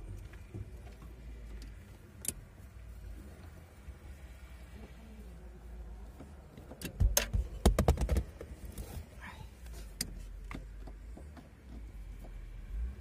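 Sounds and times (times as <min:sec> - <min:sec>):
sharp clicks and knocks: 0:06.2 - 0:08.9.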